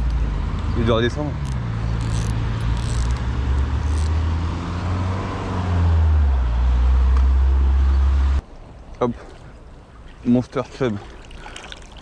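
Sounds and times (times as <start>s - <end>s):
road traffic engine drone: 0.0s - 8.4s
vehicle passing by: 0.0s - 8.4s.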